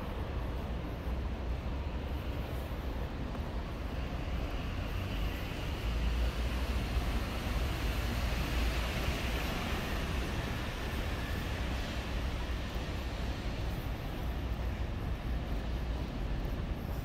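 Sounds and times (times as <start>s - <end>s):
city street traffic drone: 0.0s - 17.0s.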